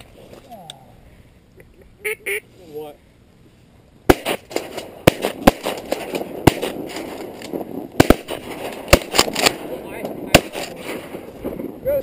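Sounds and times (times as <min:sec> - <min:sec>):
reeds cracking loudly: 0:04.1 - 0:11.7.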